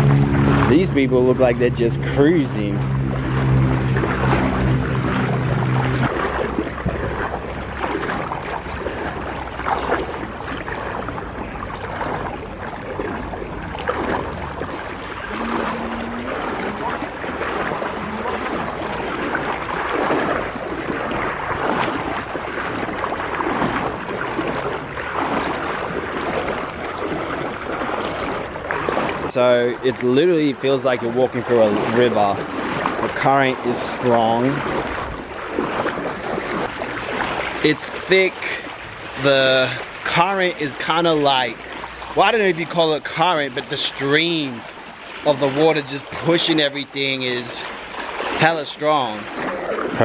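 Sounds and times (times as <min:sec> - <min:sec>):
low steady hum: 0:00.0 - 0:31.6
flowing water rushing: 0:00.0 - 0:50.0
people wading through water: 0:00.0 - 0:50.0.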